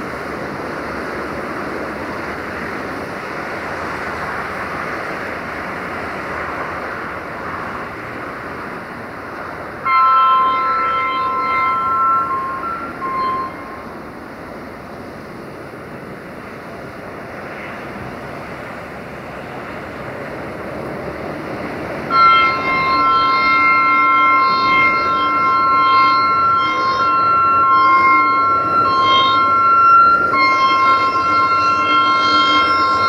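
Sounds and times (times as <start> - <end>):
locomotive running noise: 0.0 - 33.0
locomotive two-tone air horn: 9.8 - 14.2, 22.1 - 33.0.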